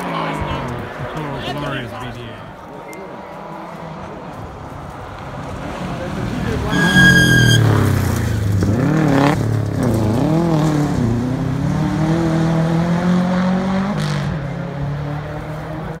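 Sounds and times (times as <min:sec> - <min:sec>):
rally car engine revving: 0:05.2 - 0:16.0.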